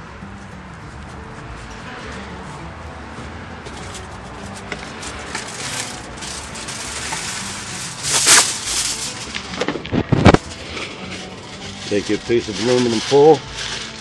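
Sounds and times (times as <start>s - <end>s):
corn husks rustling: 3.7s - 14.0s
loud crinkly rustle: 3.7s - 14.0s.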